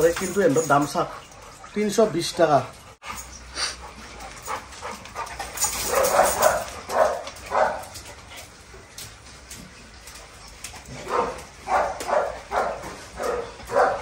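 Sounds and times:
dogs barking: 0:04.4 - 0:08.1, 0:10.8 - 0:14.0.

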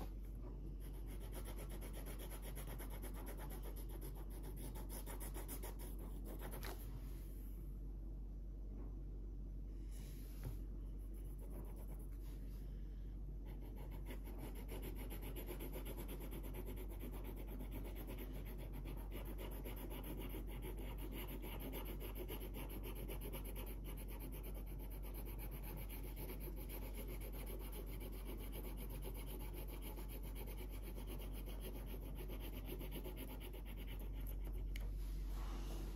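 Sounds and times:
marker scribbling on paper: 0:13.5 - 0:34.7.

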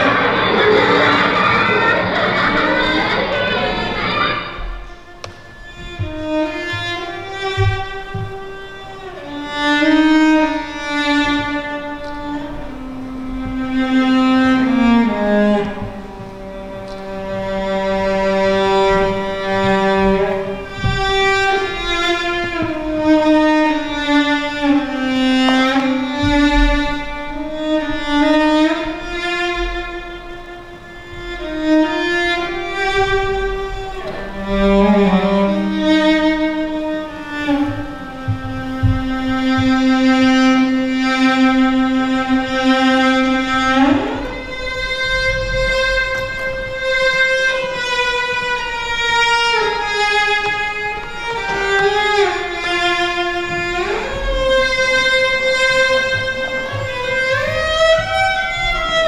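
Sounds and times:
slow bowed string music: 0:00.0 - 0:59.0.

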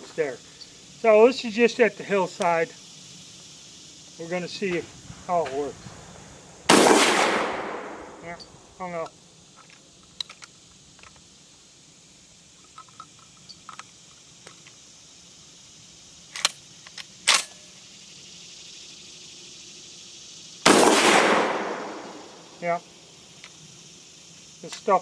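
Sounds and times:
loud shotgun blast: 0:06.7 - 0:08.1, 0:20.7 - 0:22.2.

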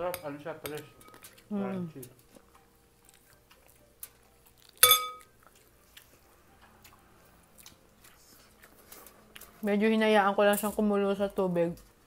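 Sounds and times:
metal spoon clinking on glass bowl: 0:04.8 - 0:05.3.

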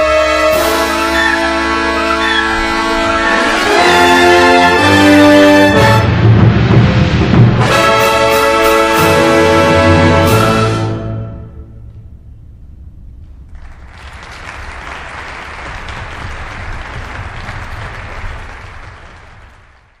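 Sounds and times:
low hall rumble: 0:00.0 - 0:20.0
audience applauding: 0:00.5 - 0:05.8, 0:13.5 - 0:20.0.

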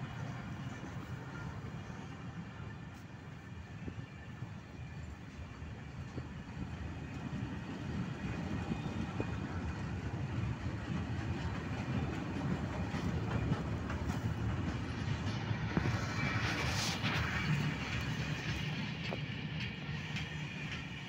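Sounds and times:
freight train wheels clattering: 0:06.1 - 0:21.0.

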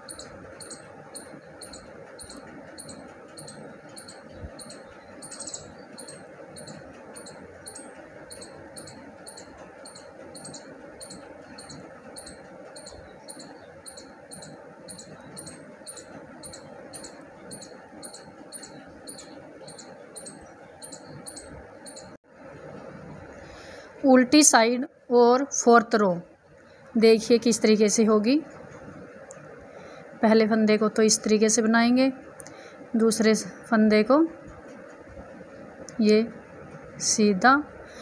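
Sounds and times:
faint high-pitched chirp: 0:00.0 - 0:22.2
steady background noise: 0:00.0 - 0:38.0.

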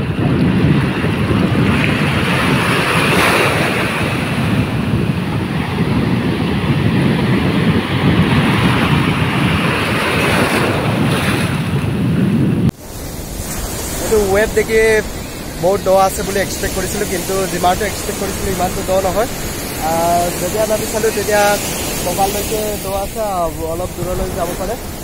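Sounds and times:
ocean surf breaking: 0:00.0 - 0:25.0
wind rumbling on microphone: 0:00.0 - 0:25.0.

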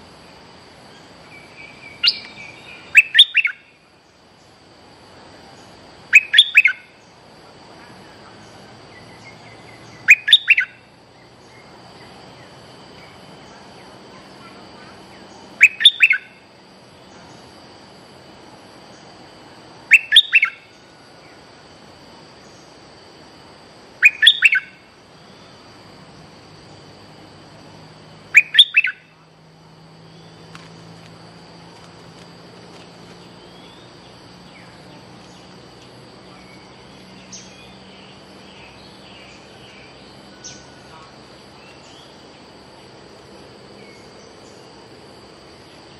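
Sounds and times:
bulbul calling: 0:01.0 - 0:03.8, 0:06.1 - 0:07.1, 0:08.2 - 0:16.5, 0:19.9 - 0:20.8, 0:24.0 - 0:25.5, 0:28.3 - 0:29.3.

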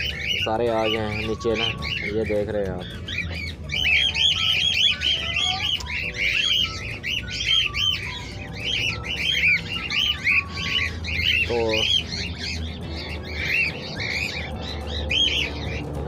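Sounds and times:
cockatiels chirping: 0:00.0 - 0:16.0.

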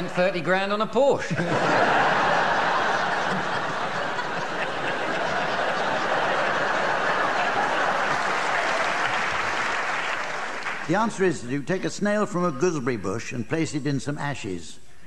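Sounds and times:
audience laughing: 0:01.3 - 0:09.9
audience clapping: 0:02.2 - 0:11.3.

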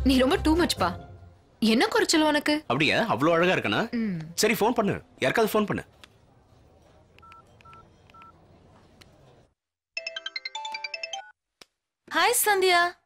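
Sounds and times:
melodic phone ringtone: 0:10.0 - 0:11.4.

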